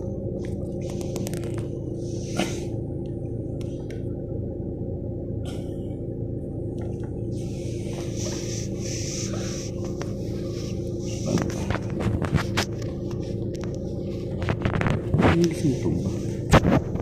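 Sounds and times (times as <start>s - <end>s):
car engine idling: 0.0s - 17.0s
hiss: 2.0s - 2.7s, 7.4s - 11.4s.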